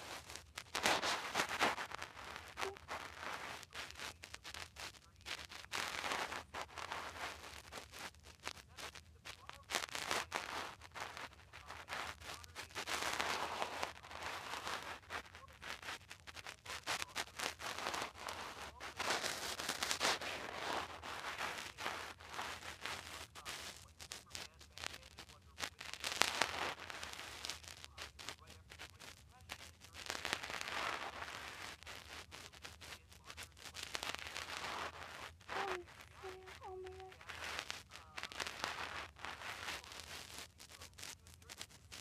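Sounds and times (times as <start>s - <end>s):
narrating voice through phone speaker: 2.6s - 4.5s, 33.0s - 37.3s.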